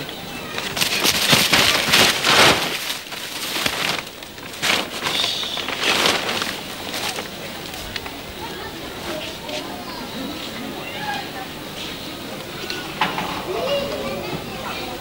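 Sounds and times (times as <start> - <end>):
rustling against charcoal sack: 0.0 - 9.8.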